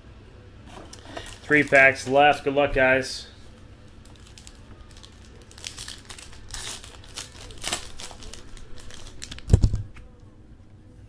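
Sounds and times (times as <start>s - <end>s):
wrapper crinkling and tearing: 0.9s - 2.0s, 3.5s - 9.9s.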